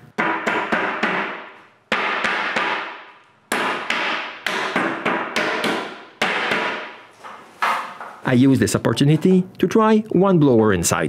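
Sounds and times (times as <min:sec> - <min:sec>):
wooden mallet knocking plywood box: 0:00.2 - 0:06.9.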